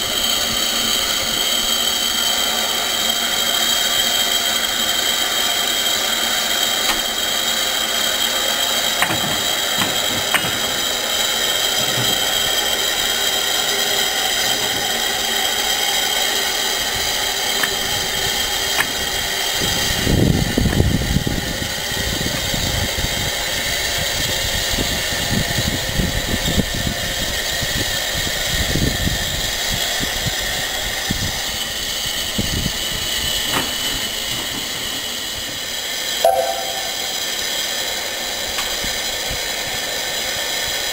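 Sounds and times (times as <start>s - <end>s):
steam hissing: 0.0s - 40.9s
low rumbling buffets: 3.9s - 27.2s
metal clicks and clanks: 6.8s - 7.3s, 8.9s - 13.0s, 17.5s - 19.1s.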